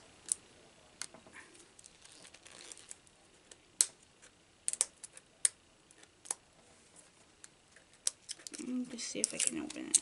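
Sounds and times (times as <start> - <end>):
plastic wrap crinkling and tearing: 1.8 - 3.1.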